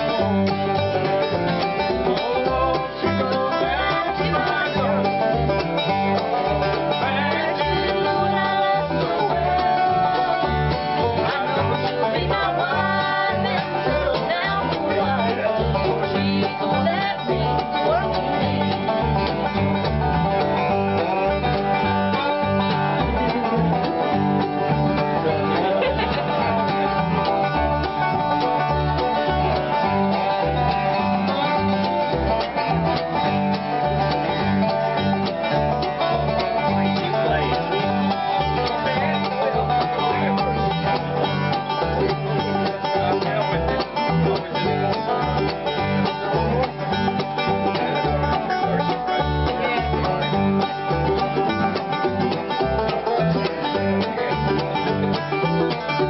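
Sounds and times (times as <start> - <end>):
banjo: 0.0 - 56.0
flatpicked acoustic guitar: 0.0 - 56.0
plucked upright bass: 0.0 - 56.0.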